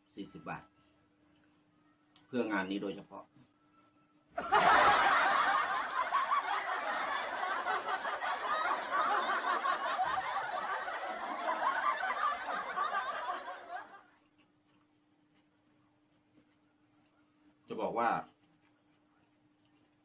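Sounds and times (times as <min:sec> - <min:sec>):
people snickering and chuckling: 0:04.4 - 0:14.1.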